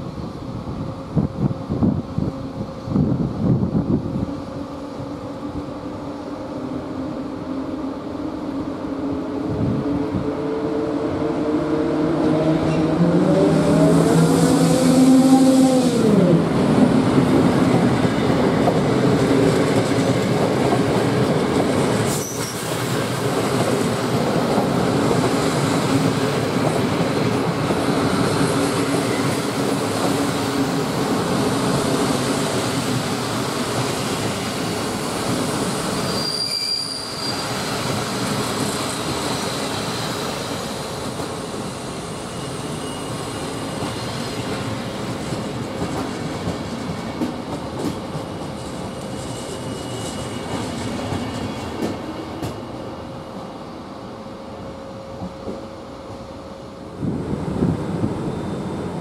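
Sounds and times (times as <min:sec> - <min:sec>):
electric locomotive whine: 0:00.0 - 0:59.0
train wheels rumbling on rails: 0:07.2 - 0:53.8, 0:54.4 - 0:59.0
high wheel squeal: 0:22.1 - 0:22.8, 0:35.9 - 0:38.0, 0:41.6 - 0:44.5, 0:48.6 - 0:51.6.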